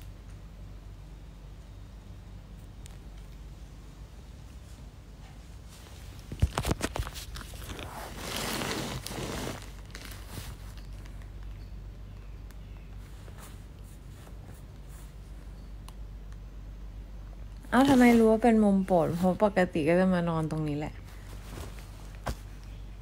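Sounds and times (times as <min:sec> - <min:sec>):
fabric rustling: 0:04.5 - 0:11.3, 0:17.7 - 0:19.8, 0:21.0 - 0:23.0.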